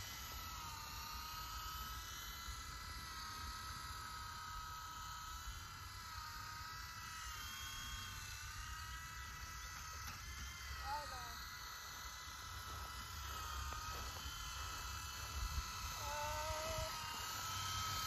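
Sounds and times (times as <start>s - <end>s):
rc helicopter motor whine: 0.0s - 18.0s.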